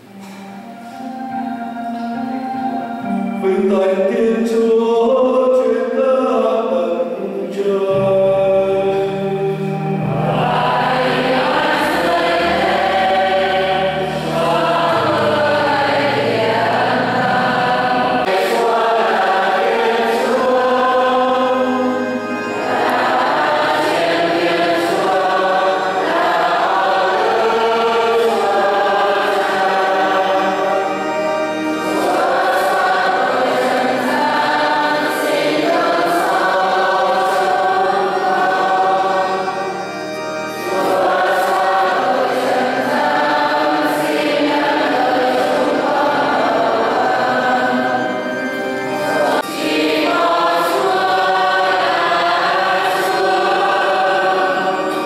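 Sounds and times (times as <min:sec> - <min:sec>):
instrumental accompaniment: 0:00.0 - 0:05.3, 0:07.0 - 0:55.0
choir singing a hymn: 0:00.0 - 0:55.0.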